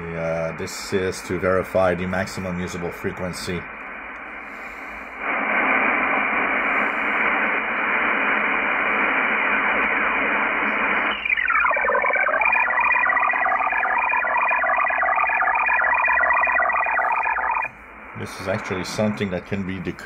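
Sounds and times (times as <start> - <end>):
radio static hiss: 0.0 - 20.0
pulsing digital data tones: 11.1 - 17.7.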